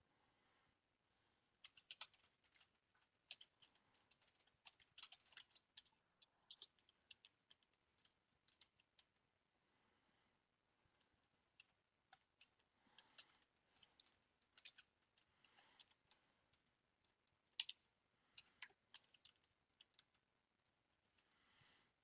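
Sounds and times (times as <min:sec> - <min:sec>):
keyboard typing: 0:01.6 - 0:09.1, 0:11.6 - 0:16.7, 0:17.4 - 0:17.8, 0:18.4 - 0:20.2.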